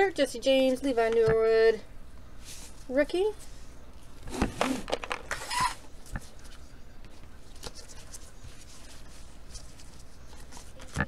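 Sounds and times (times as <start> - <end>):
trading cards rustling: 4.3 - 11.0.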